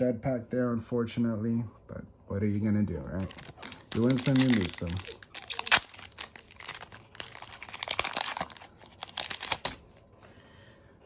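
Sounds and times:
foil wrapper tearing and crinkling: 3.2s - 10.0s.

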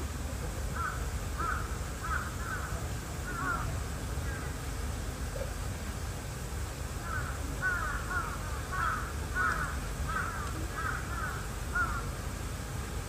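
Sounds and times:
crow cawing: 0.8s - 3.7s, 7.0s - 12.1s.

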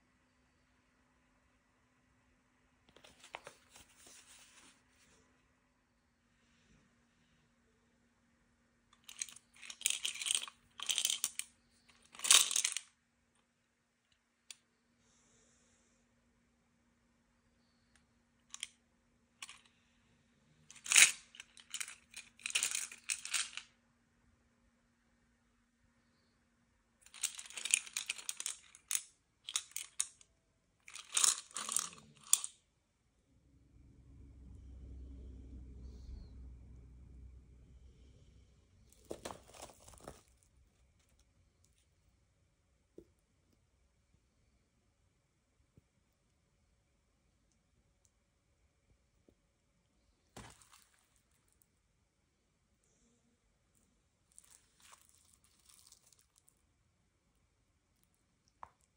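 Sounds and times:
clips rattling in plastic container: 9.0s - 11.5s, 12.1s - 12.8s, 27.1s - 30.1s, 30.9s - 32.5s
low rumble: 33.2s - 39.1s.

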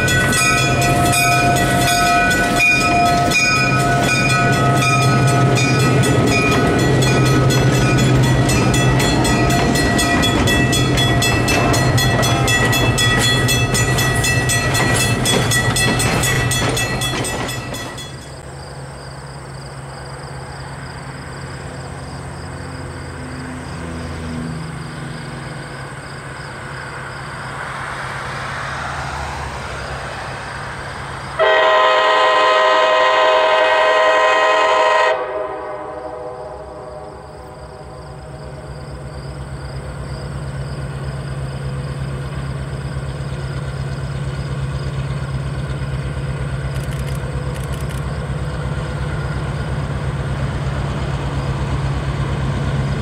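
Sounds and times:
diesel locomotive engine running: 0.0s - 53.0s
locomotive air horn blast: 31.4s - 37.9s.

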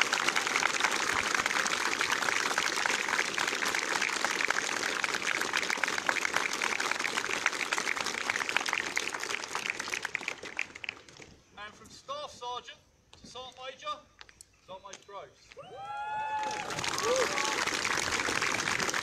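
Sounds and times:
crowd applauding: 0.0s - 11.3s, 15.7s - 19.0s.

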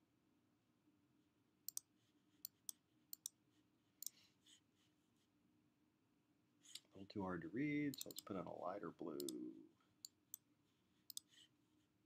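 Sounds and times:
computer mouse clicks: 1.7s - 3.4s, 7.9s - 8.3s, 9.2s - 9.4s, 11.1s - 11.3s.

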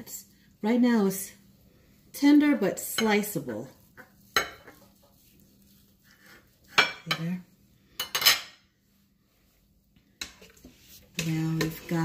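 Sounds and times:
knife scraping ceramic plate: 4.0s - 5.2s.

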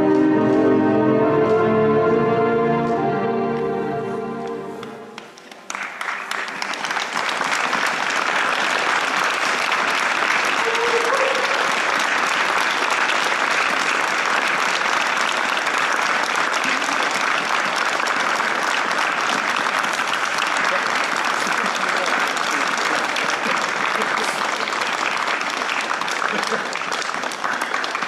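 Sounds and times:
music: 0.0s - 5.3s
audience applause: 4.4s - 28.0s.

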